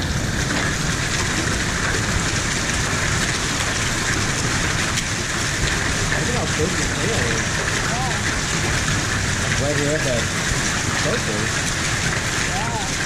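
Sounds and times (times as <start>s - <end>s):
hail and heavy rain on roofs: 0.0s - 13.0s.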